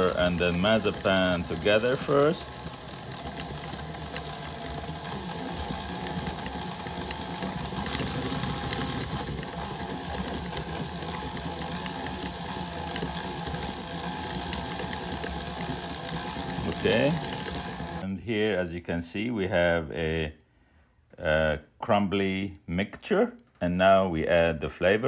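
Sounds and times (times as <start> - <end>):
stand mixer motor humming: 0.0 - 18.0.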